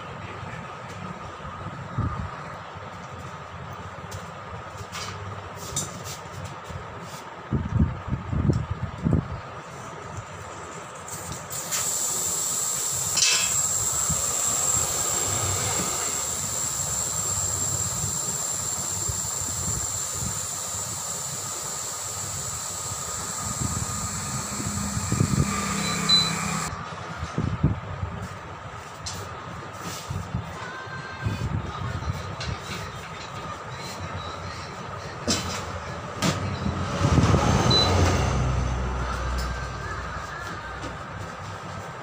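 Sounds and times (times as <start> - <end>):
air hissing through valve: 11.1 - 26.7
thin whistle: 22.8 - 26.7.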